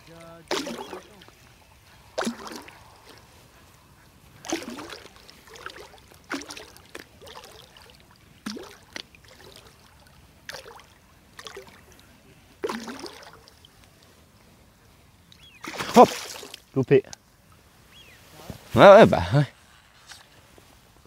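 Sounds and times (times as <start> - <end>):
water slapping against float tube: 0.0 - 3.3, 4.4 - 12.0, 12.6 - 13.7, 15.6 - 16.6
sharp splash: 0.1 - 1.5, 2.1 - 3.3, 4.4 - 12.0, 12.6 - 13.6, 15.6 - 16.7.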